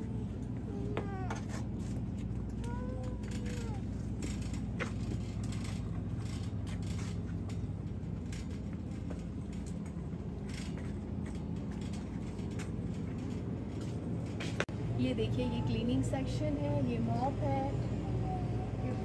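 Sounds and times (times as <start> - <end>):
shopping cart rolling: 1.1 - 14.6.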